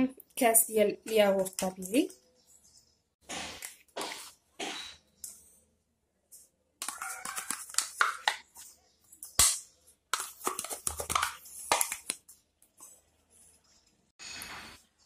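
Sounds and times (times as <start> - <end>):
spoon scraping plastic pot: 6.8 - 8.6, 10.1 - 12.1.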